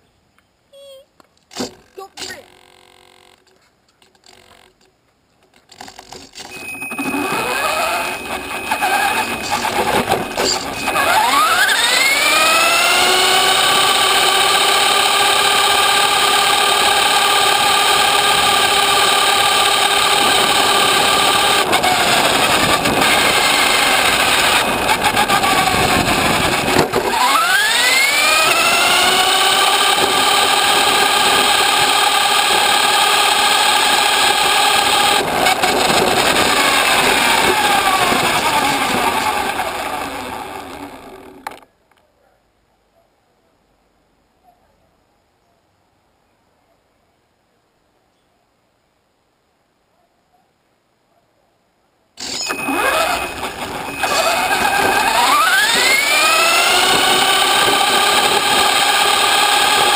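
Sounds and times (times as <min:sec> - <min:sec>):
tyre noise on road: 0:01.2 - 0:41.8, 0:52.2 - 0:59.9
toy car motor whining: 0:01.6 - 0:03.4, 0:04.2 - 0:04.8, 0:05.6 - 0:41.7, 0:52.2 - 0:59.9.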